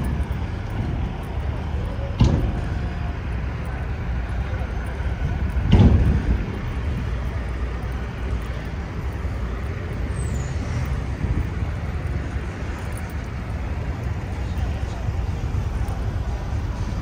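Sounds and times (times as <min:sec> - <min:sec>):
cars and buses passing: 0:00.0 - 0:17.0.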